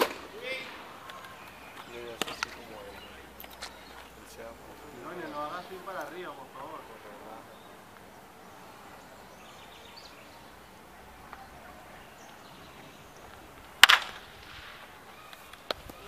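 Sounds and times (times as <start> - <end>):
baseball bat hitting ball: 0.0 - 2.7, 13.7 - 16.0
faint outdoor ambience: 0.0 - 16.0.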